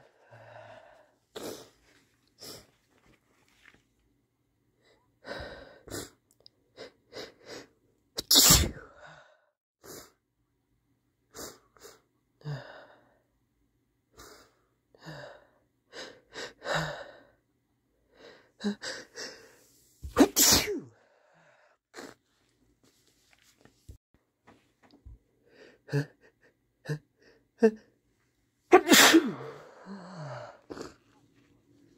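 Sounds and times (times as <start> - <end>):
man sneezing hard: 8.2 - 8.8, 20.0 - 20.9, 28.7 - 29.8.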